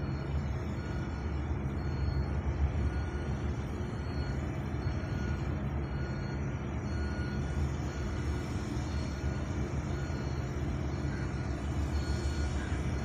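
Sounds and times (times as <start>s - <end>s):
diesel engine rumble: 0.0s - 13.0s
faint short high beeps: 0.0s - 13.0s.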